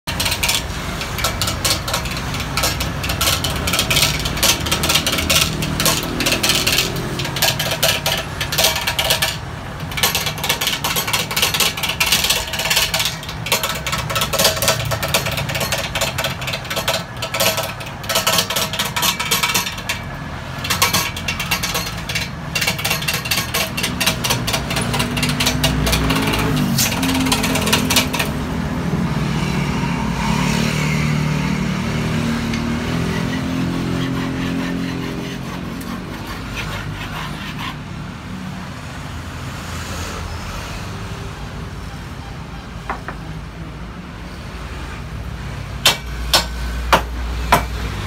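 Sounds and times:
chisel knocking and scraping wood: 0.0s - 28.5s, 32.4s - 37.8s
wood lathe turning: 0.0s - 29.8s, 32.1s - 37.9s.

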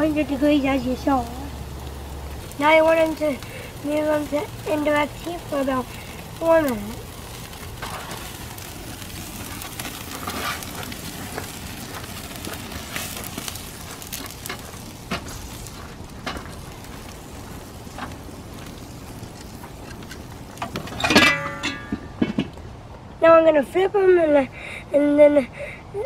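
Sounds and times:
steaks sizzling on a grill: 0.0s - 21.3s
coals crackling and popping: 0.0s - 25.8s.

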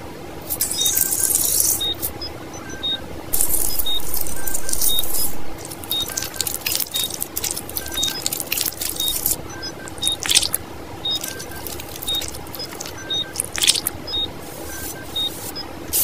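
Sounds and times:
wet squishing of banana flesh: 3.4s - 14.0s.

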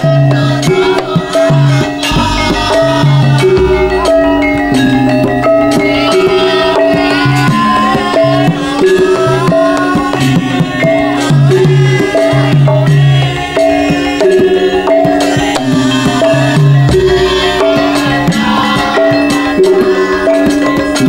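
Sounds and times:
hand drum strokes: 0.0s - 13.2s
ringing metallophone notes: 1.6s - 9.3s.

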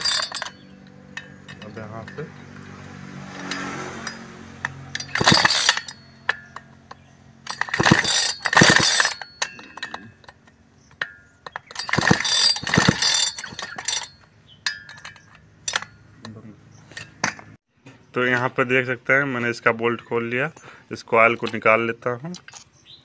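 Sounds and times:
chainsaw recoil starter pulls: 0.0s - 2.2s, 3.3s - 14.2s.

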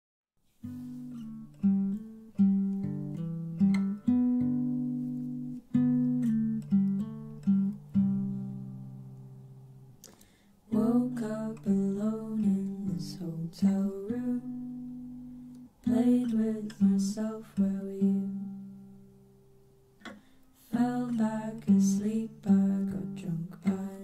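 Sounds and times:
acoustic guitar plucked notes: 0.6s - 24.0s.

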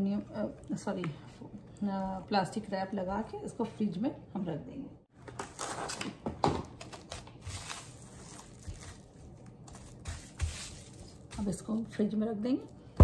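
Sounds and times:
plastic wrap crinkling and tearing: 6.8s - 11.3s.

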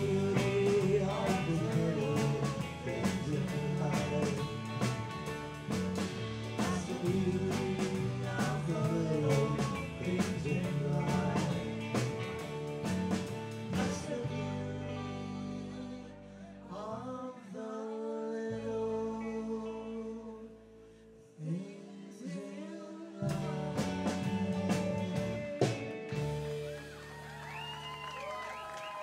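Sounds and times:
person singing: 0.0s - 4.9s, 6.4s - 12.5s, 13.7s - 20.6s, 21.4s - 26.4s
electric guitar: 0.0s - 17.2s, 23.2s - 29.0s.

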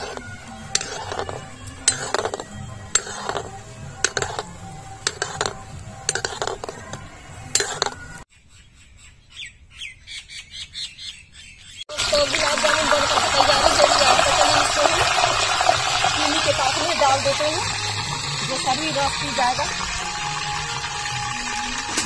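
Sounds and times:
ladle scraping an iron pan: 0.0s - 8.2s
birds chirping: 3.5s - 12.2s.

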